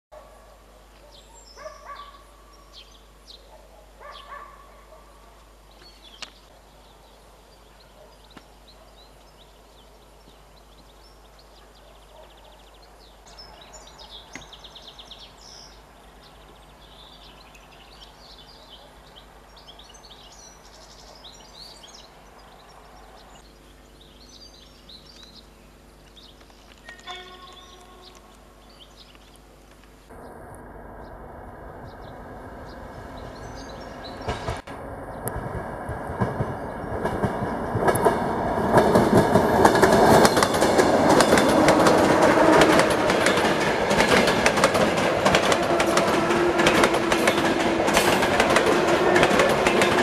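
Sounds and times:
songbirds singing: 0.2 - 30.4, 31.0 - 35.4, 36.2 - 50.0
electric train hum: 21.5 - 50.0.

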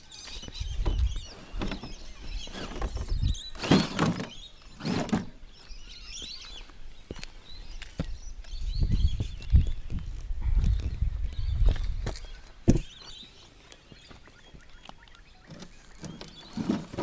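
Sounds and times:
birds chirping faintly: 0.0 - 17.0
toy car scraping against rock: 1.3 - 5.4, 15.4 - 17.0.

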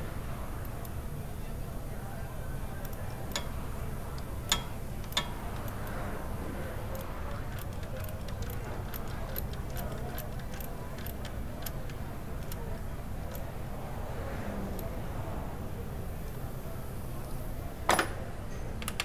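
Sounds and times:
ratchet wrench clicking: 2.8 - 6.1, 6.9 - 13.5.

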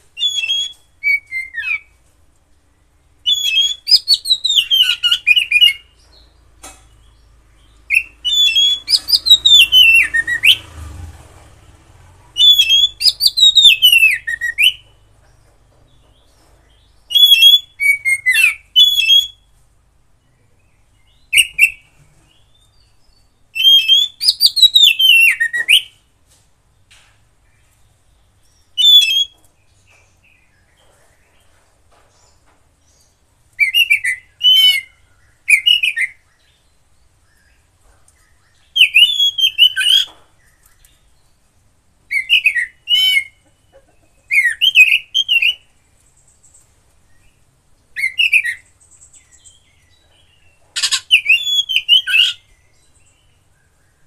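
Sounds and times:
bird singing whistled phrases: 0.2 - 1.9, 3.2 - 5.9, 7.9 - 10.6, 12.4 - 14.8, 17.1 - 19.5, 23.6 - 26.0, 28.8 - 29.4, 33.6 - 36.2, 38.7 - 40.1, 42.1 - 43.4, 44.3 - 45.7, 48.0 - 48.7, 50.8 - 52.5.

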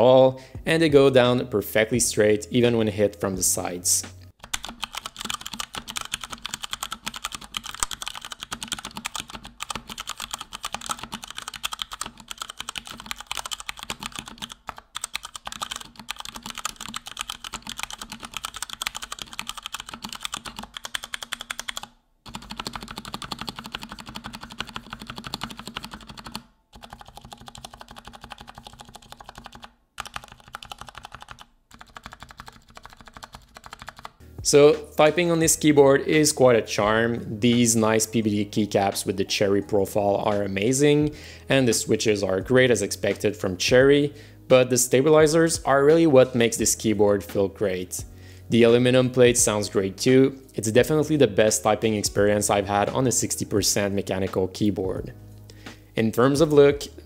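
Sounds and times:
fast typing on mechanical keyboard: 4.4 - 34.2.

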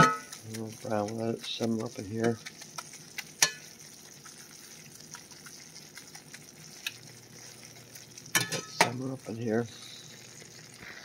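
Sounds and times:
gravy sizzling in a skillet: 0.0 - 11.0
metal spatula clicking on pan: 3.2 - 3.7.

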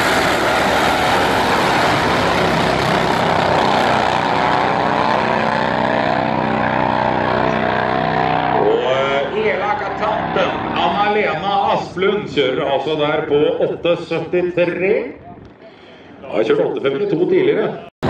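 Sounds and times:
drag motorcycles roaring: 0.0 - 14.1.

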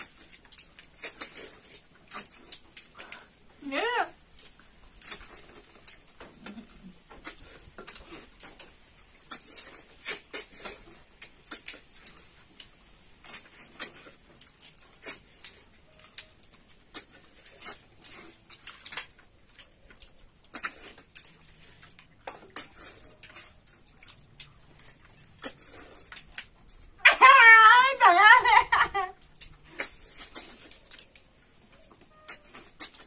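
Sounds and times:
sucking and slurping: 4.4 - 16.0, 16.6 - 27.0, 29.3 - 33.0.

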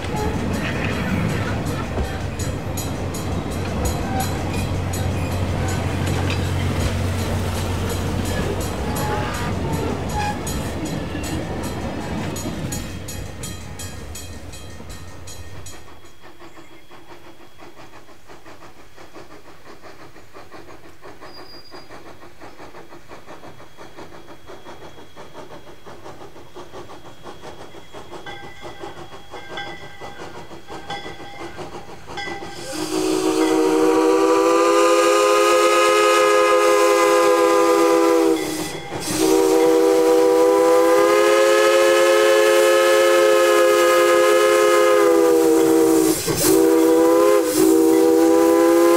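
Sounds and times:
railroad cars rumbling and clattering: 0.0 - 48.9
steam locomotive chuffing: 0.0 - 48.9
steam whistle chord: 3.8 - 10.9, 32.6 - 48.9.

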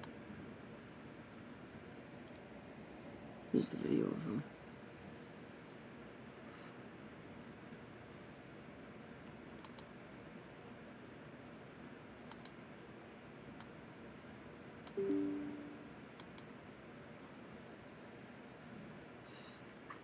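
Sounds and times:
computer mouse clicking: 9.6 - 9.9, 12.3 - 12.6, 16.2 - 16.5
low two-note tone: 15.0 - 16.0.

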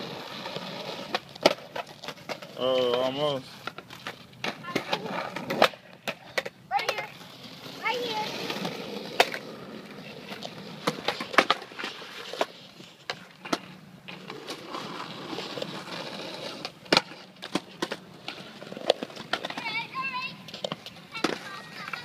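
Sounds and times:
skateboard wheels rumbling on concrete: 0.0 - 22.0
skateboards clacking on ground: 0.0 - 22.0.

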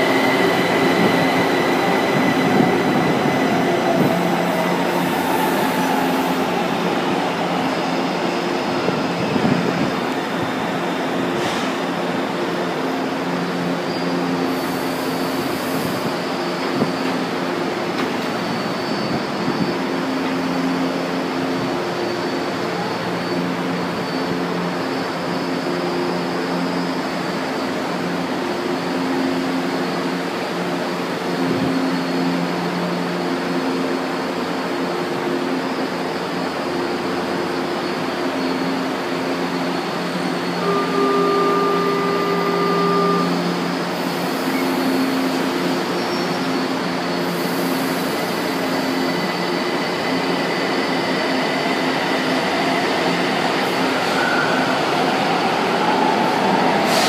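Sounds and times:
train rolling noise: 0.0 - 57.0
short high steady tone: 40.6 - 43.7.

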